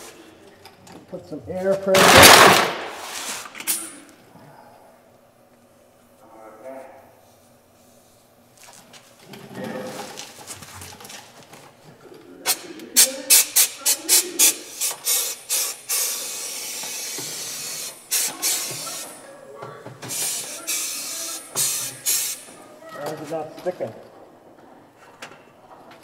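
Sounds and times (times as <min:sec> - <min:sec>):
spray gun hissing bursts: 0:13.3 - 0:19.2, 0:20.0 - 0:22.5.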